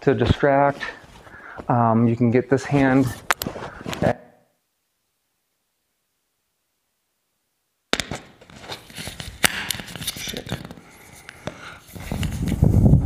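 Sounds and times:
clothing rustling on microphone: 2.6 - 4.2, 11.8 - 13.0.

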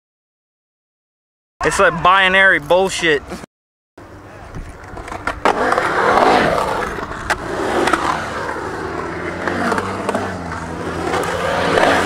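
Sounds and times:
skateboard wheels rolling on concrete: 4.0 - 12.0.

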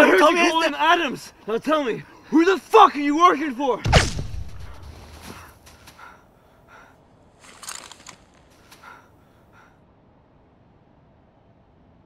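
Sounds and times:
faint breaths and gasps: 5.2 - 9.9.

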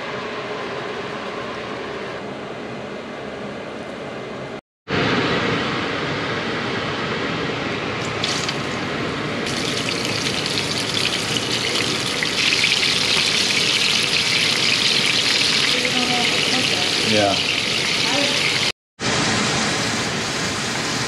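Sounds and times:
fish sizzling in a frying pan: 9.5 - 18.7.

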